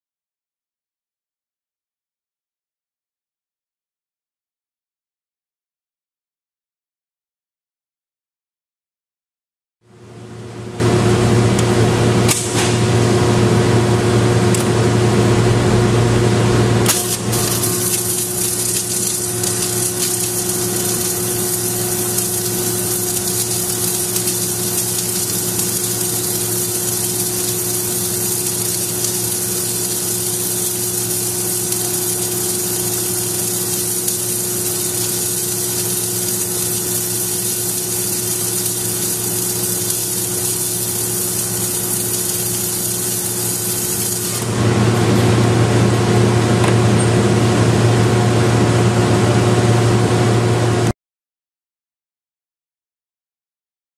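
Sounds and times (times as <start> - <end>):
welding machine humming and hissing: 10.0 - 50.9.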